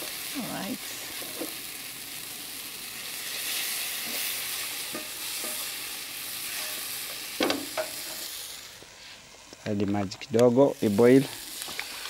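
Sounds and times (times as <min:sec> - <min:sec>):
sauce sizzling in a pan: 0:00.0 - 0:12.0
spatula scraping a pan: 0:03.2 - 0:05.8, 0:06.4 - 0:08.3.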